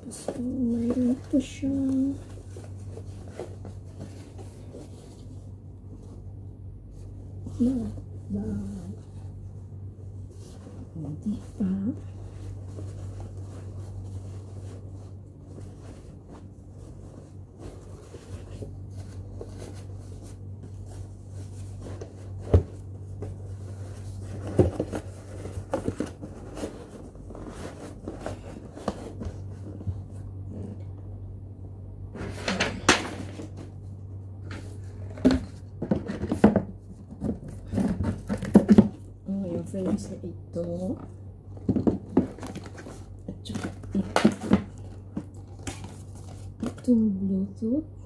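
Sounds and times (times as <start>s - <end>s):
steady low hum: 0.0s - 48.0s
cardboard box moved: 12.2s - 30.8s.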